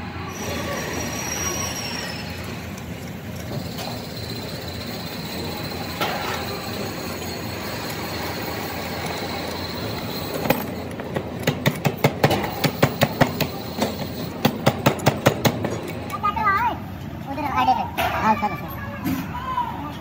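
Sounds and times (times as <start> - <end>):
workshop machinery noise: 0.0 - 19.5.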